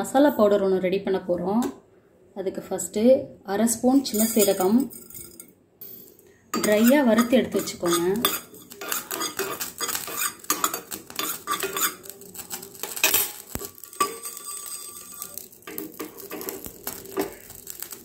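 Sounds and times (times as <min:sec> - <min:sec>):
steel spoon scraping a pan: 0:04.1 - 0:04.9, 0:06.5 - 0:18.0.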